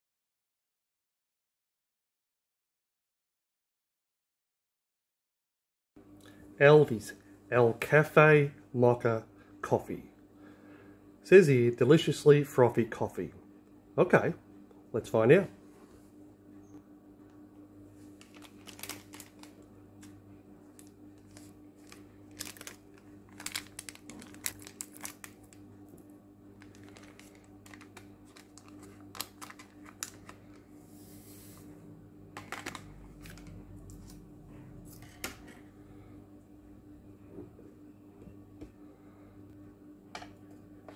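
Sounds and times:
steady low hum: 6.0s - 40.9s
foil sachet crinkling and tearing: 18.1s - 25.7s, 26.6s - 30.6s, 32.4s - 33.5s.

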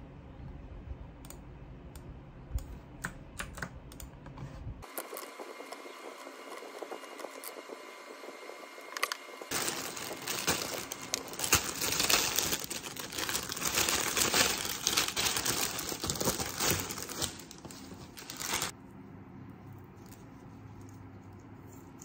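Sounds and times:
plastic bag crinkling: 9.0s - 18.7s.

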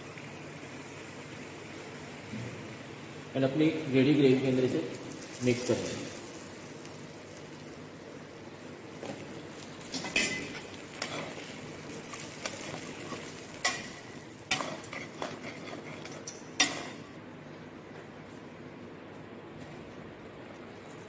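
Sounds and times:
gravy sizzling: 0.0s - 17.2s
spatula scraping metal pan: 14.6s - 16.2s.

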